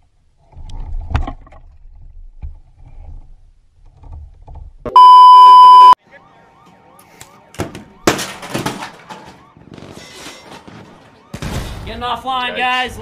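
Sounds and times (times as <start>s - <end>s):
loud electronic beep: 4.9s - 6.0s.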